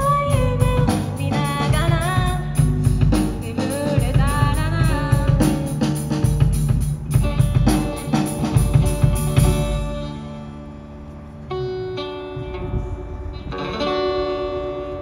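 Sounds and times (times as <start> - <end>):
drum kit crashes: 0.0 - 10.2
guitar chords ringing out: 7.1 - 15.0.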